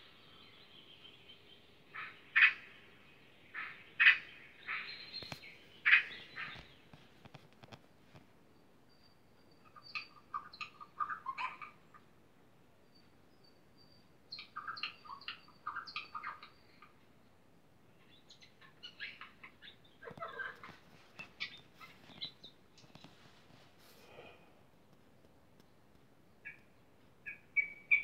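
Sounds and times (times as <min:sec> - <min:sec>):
small bird chirping: 0:00.0 - 0:17.3, 0:17.9 - 0:24.2, 0:25.6 - 0:28.0.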